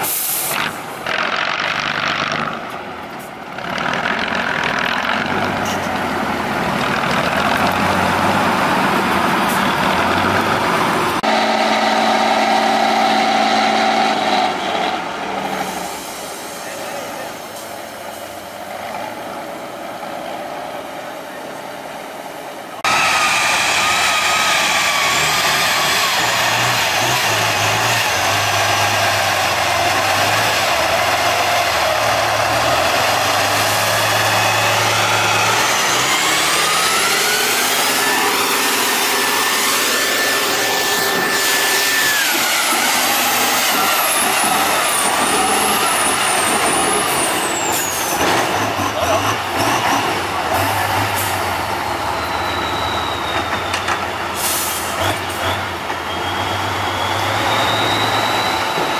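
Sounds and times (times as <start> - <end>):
diesel truck engine under load: 0.0 - 58.9.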